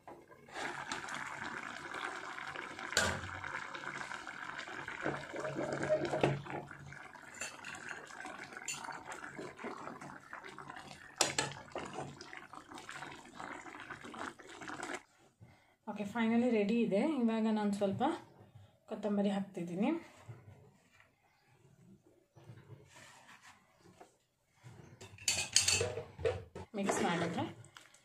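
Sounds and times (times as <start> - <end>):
curry bubbling in a pan: 0.4 - 15.1.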